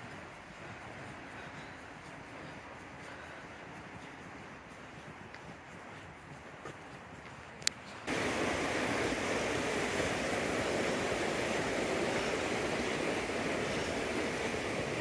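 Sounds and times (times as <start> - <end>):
fast-flowing creek rushing: 8.1 - 15.0.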